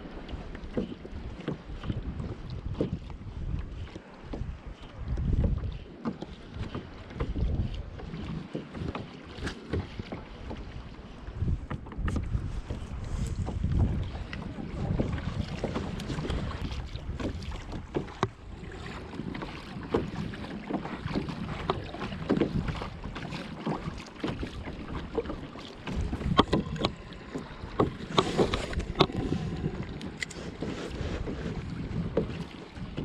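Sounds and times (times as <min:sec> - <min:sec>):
small waves lapping against hull: 0:00.0 - 0:33.0
wind buffeting microphone: 0:00.0 - 0:33.0
sharp clicks and knocks: 0:26.2 - 0:27.0.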